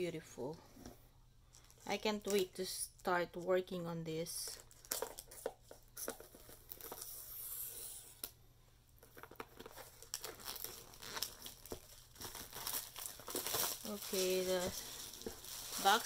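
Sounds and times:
plastic shrink wrap tearing: 9.0s - 16.0s.

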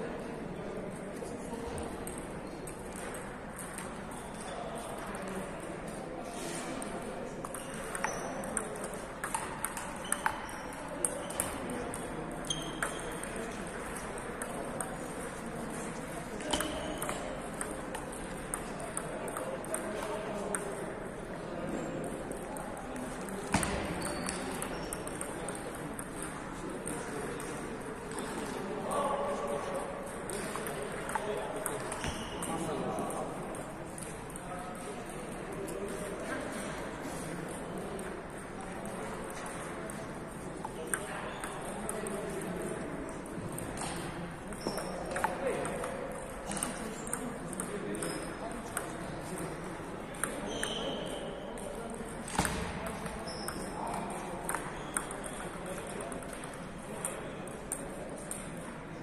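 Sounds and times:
murmur of voices: 0.0s - 59.0s
steady background noise: 0.0s - 59.0s
table tennis ball clicks: 7.4s - 15.2s, 30.3s - 32.7s, 54.4s - 58.5s.

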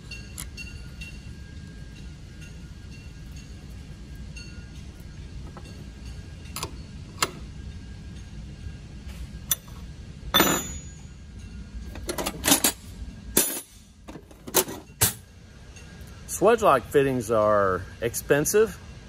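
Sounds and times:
steady low hum: 0.0s - 19.0s
wrench clinking on metal fitting: 10.4s - 11.1s.

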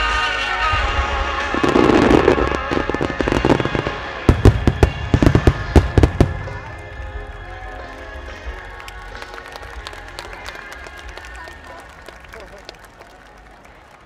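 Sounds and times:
music: 0.0s - 14.0s
fireworks bursting with bangs: 0.8s - 8.3s.

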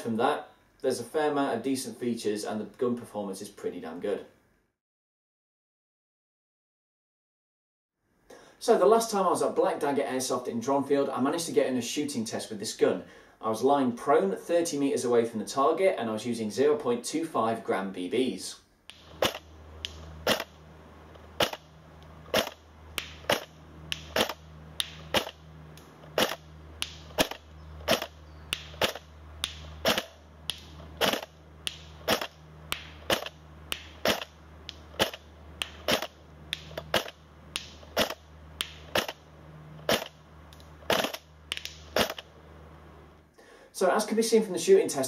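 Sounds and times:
low hum: 18.9s - 43.4s
airsoft gun shots: 19.0s - 19.5s, 20.2s - 20.5s, 21.4s - 21.7s, 22.3s - 25.4s, 26.2s - 34.3s, 34.9s - 39.2s, 39.9s - 40.2s, 40.9s - 42.2s.

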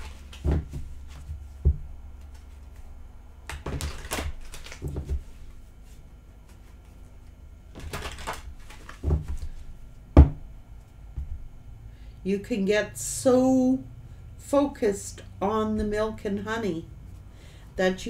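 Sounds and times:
cards riffling: 3.5s - 5.4s, 7.7s - 9.6s.

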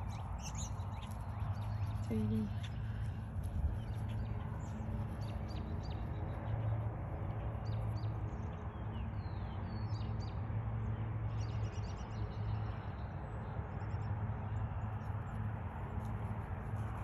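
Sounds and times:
small birds chirping: 0.0s - 6.8s
steady low hum: 0.0s - 17.0s.

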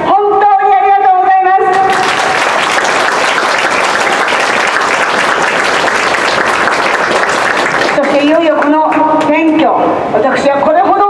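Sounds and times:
crowd applauding: 1.7s - 9.3s.

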